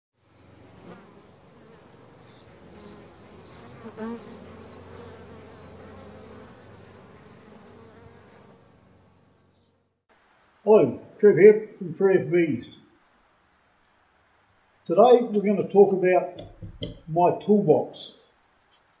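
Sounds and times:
bees buzzing: 0.2 - 10.0.

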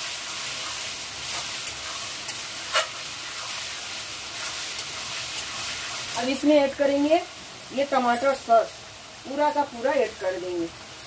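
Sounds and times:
food sizzling in a pan: 0.0 - 11.0
metal spatula scraping a pan: 0.6 - 3.7.

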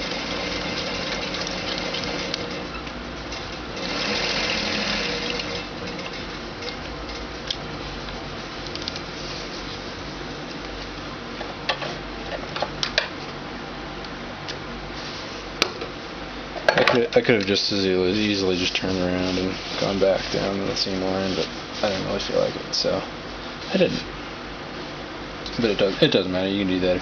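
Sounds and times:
sewing machine running: 0.0 - 6.8.

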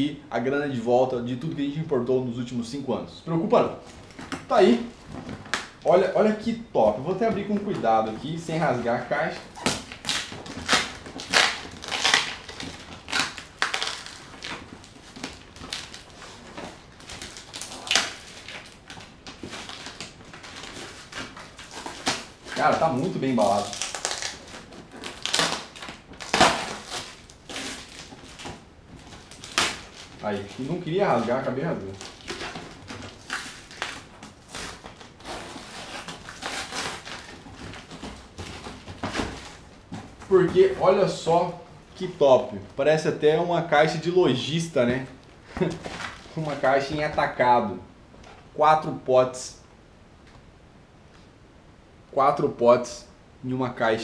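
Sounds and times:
packaging crinkling and rustling: 3.8 - 42.8, 43.8 - 47.5
cardboard box crunches: 7.4 - 41.3.

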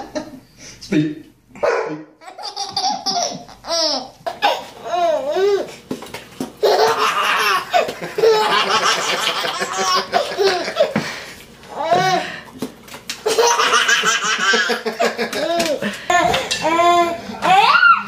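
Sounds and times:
baby laughing: 2.2 - 5.7, 6.6 - 11.0, 13.2 - 18.0.

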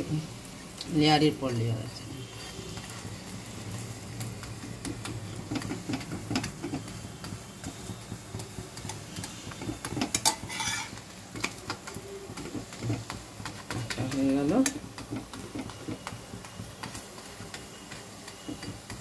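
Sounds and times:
light sizzling: 0.0 - 19.0
spatula scraping frying pan: 4.4 - 14.2
clatter of flatbread flipped: 9.6 - 11.6.

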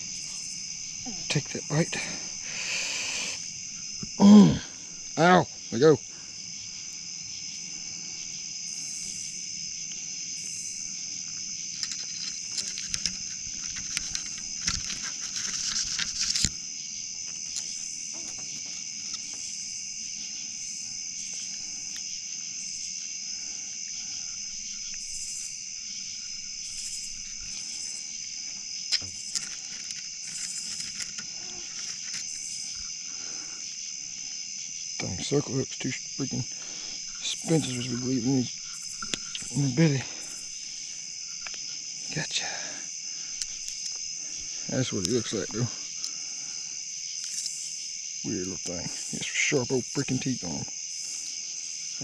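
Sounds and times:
night insects buzzing: 0.0 - 52.0
handling clicks and rustles: 11.3 - 16.6, 26.7 - 33.0.

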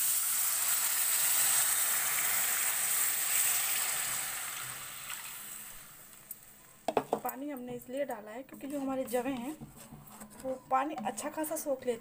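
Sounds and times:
water pouring into hot pan: 0.0 - 6.1
food splashing and sizzling: 0.0 - 6.3.

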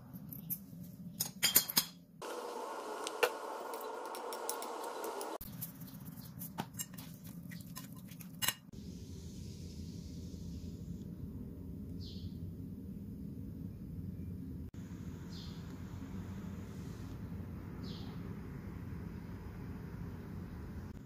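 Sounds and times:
utensils clinking against bowl: 6.6 - 8.7.

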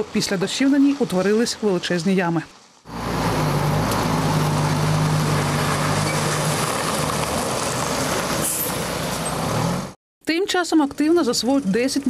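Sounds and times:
tyres on wet road: 0.0 - 10.0
cars passing: 2.9 - 10.0
lorry diesel engine droning: 2.9 - 10.0.

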